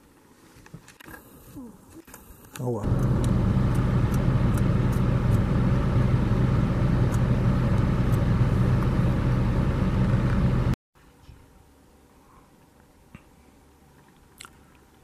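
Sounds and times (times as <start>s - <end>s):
vehicle engine idling: 2.8s - 10.8s.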